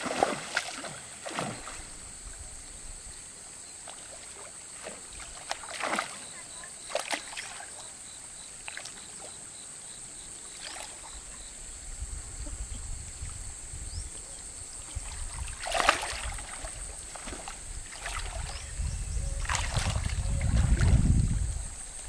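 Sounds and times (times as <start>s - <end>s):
water splashing against boat: 0.0s - 2.2s, 3.8s - 7.9s, 14.7s - 22.0s.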